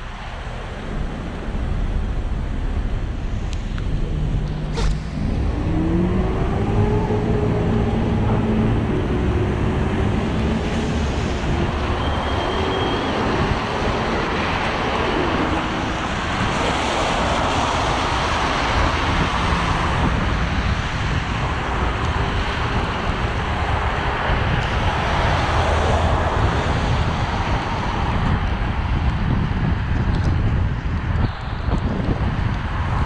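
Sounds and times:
wind on microphone: 0:00.0 - 0:33.0
vehicle engine pulling away: 0:03.9 - 0:16.3.

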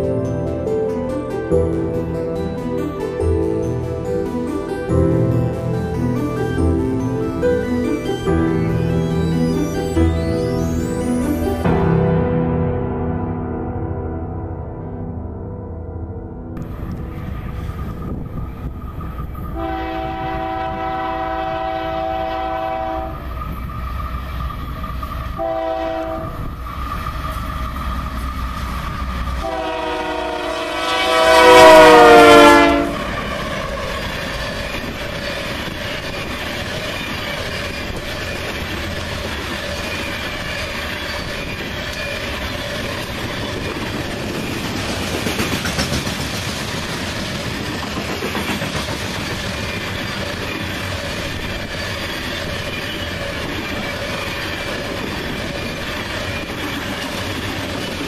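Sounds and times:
rumble and clatter of rail cars: 0:16.6 - 0:58.0
locomotive air horn blasts: 0:19.6 - 0:23.2, 0:25.4 - 0:26.5, 0:29.4 - 0:33.1.

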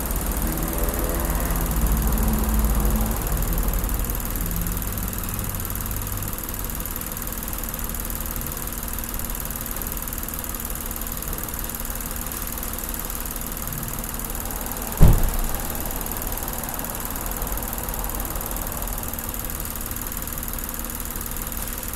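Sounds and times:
car engine idling: 0:00.0 - 0:21.9
heavy thump: 0:14.7 - 0:15.8.

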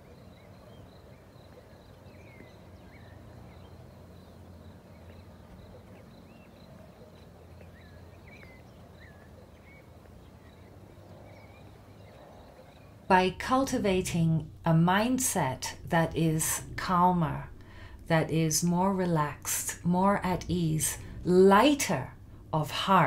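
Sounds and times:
birds chirping: 0:00.0 - 0:23.0
low hum: 0:13.0 - 0:23.0
rapidly pulsing high note: 0:13.1 - 0:23.0.

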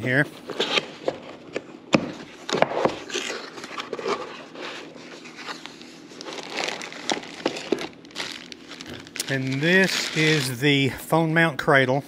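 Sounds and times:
packaging rustling: 0:02.4 - 0:10.8.

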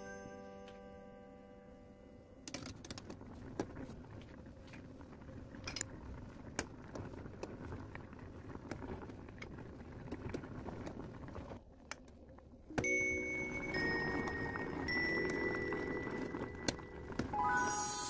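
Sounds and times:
broth bubbling: 0:03.2 - 0:12.7.

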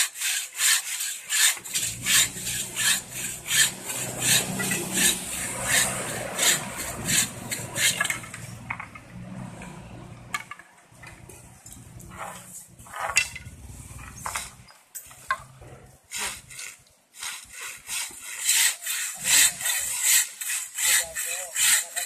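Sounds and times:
bow saw cutting bamboo: 0:00.0 - 0:08.6, 0:16.1 - 0:22.0.

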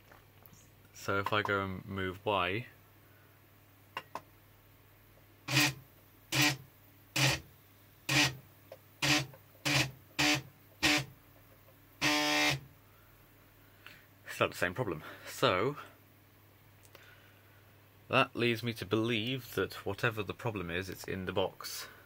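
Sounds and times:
stepper motor buzzing: 0:05.5 - 0:06.6, 0:07.2 - 0:07.5, 0:08.1 - 0:08.4, 0:09.0 - 0:11.1, 0:12.0 - 0:12.7.

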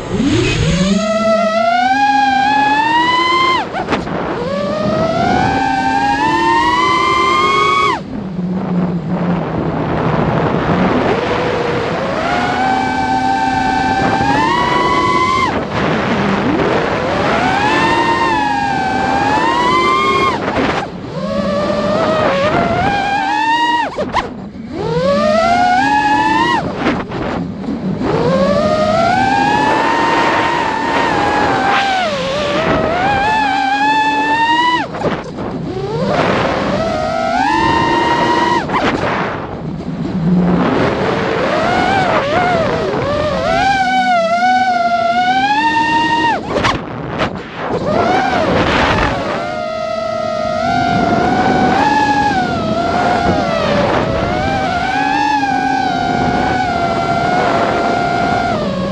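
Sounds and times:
drone motors whining: 0:00.0 - 0:58.9.

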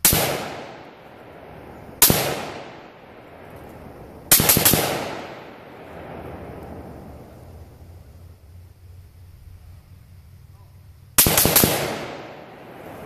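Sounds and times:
rifle shots with echo: 0:00.0 - 0:01.1, 0:02.0 - 0:03.2, 0:04.3 - 0:05.8, 0:11.2 - 0:12.8.

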